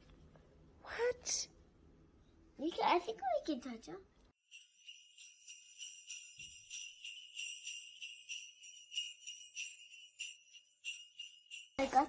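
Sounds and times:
sleigh bells jingling: 4.4 - 12.0.

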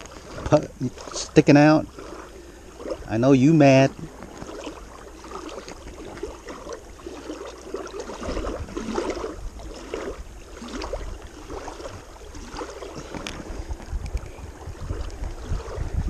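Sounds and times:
small waves lapping: 0.0 - 16.0
wind rumble on microphone: 0.0 - 16.0.

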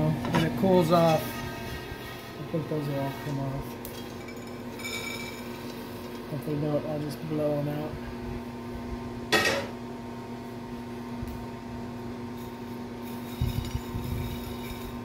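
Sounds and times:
coffee beans clattering: 3.8 - 6.4, 12.4 - 15.0
coffee beans rattling on a plate: 3.9 - 6.3, 13.0 - 15.0.

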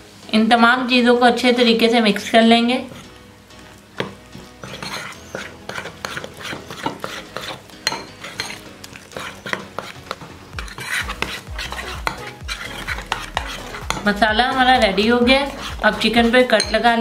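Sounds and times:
spoon stirring thick marinade: 2.8 - 17.0
spoon scraping and clinking bowl: 4.0 - 14.2, 15.4 - 17.0.

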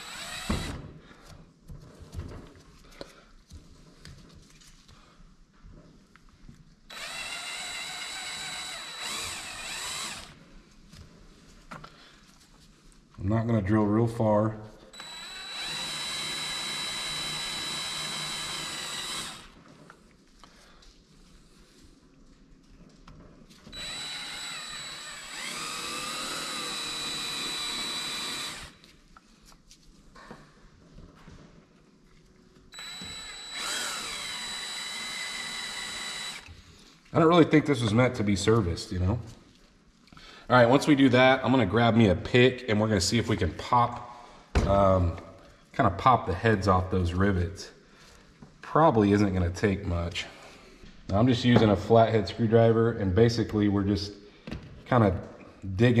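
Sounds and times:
cordless drill drilling plastic: 0.0 - 0.8, 6.9 - 10.4, 14.9 - 19.6, 23.7 - 28.8, 32.7 - 36.6.

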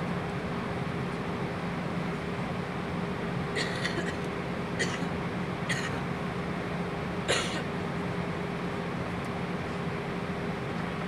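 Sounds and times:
aircraft cabin drone: 0.0 - 11.0.

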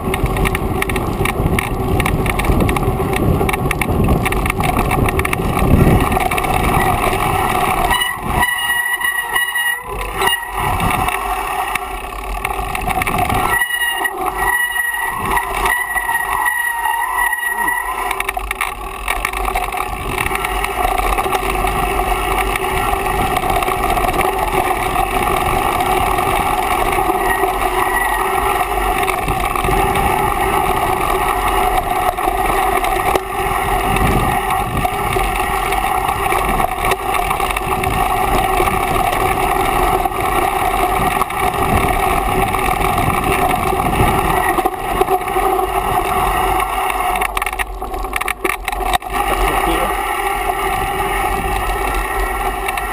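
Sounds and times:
wind rushing on microphone: 0.0 - 11.8, 19.7 - 52.9
bike knocks and rattles: 0.0 - 52.9
bike tyres rolling on dirt: 0.0 - 52.9.

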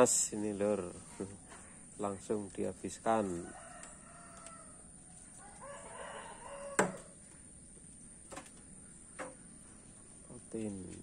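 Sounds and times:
rooster crowing: 3.2 - 7.2.

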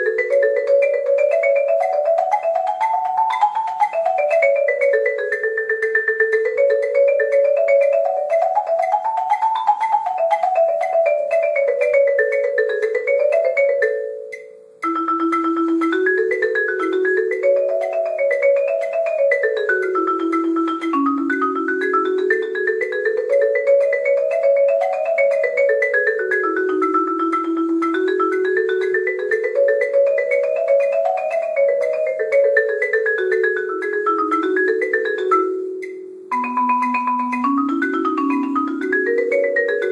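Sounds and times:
marimba played fast: 0.0 - 39.9.

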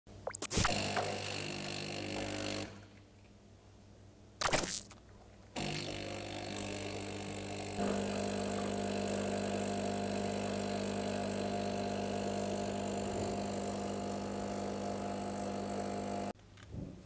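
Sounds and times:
espresso machine pump humming: 1.0 - 2.8, 5.6 - 16.4.

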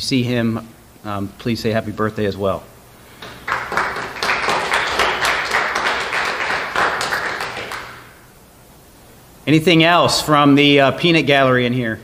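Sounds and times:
audience applauding: 3.2 - 8.1.

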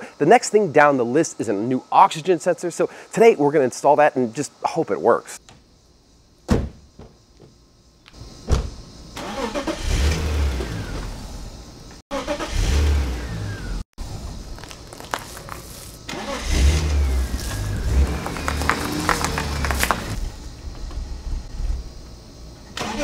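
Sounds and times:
car hood slamming shut: 6.5 - 7.1, 8.4 - 8.8
car engine revving: 12.1 - 13.8, 14.6 - 20.3.

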